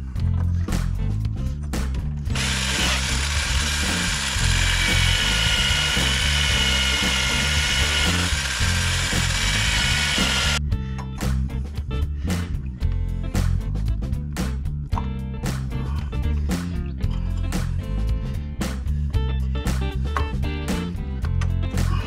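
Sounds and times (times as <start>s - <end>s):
background music with steady beat: 0.0s - 22.0s
cordless power tool driving bolts: 2.4s - 10.6s.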